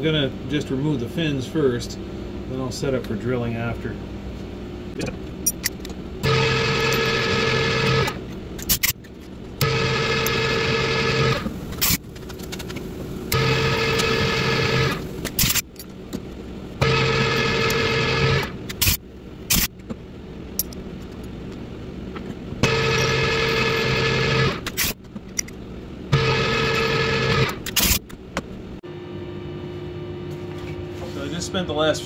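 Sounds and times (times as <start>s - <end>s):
milling machine drilling whine: 6.2s - 8.2s, 9.6s - 12.0s, 13.3s - 15.6s, 16.8s - 19.0s, 22.6s - 25.0s, 26.1s - 28.0s.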